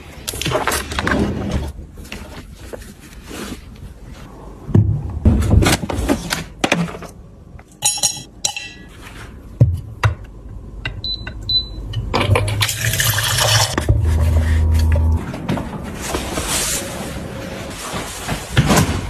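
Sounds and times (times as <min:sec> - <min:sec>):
low hum: 0:10.4 - 0:17.7.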